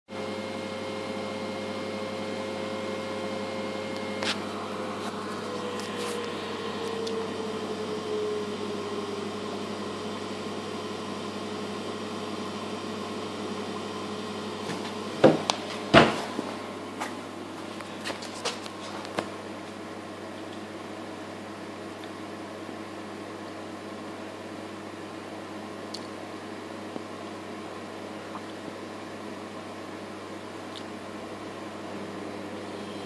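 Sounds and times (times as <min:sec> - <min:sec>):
imagesetter mechanical hum: 0:00.2 - 0:23.2, 0:25.0 - 0:33.0
loud knocks: 0:15.2 - 0:16.4.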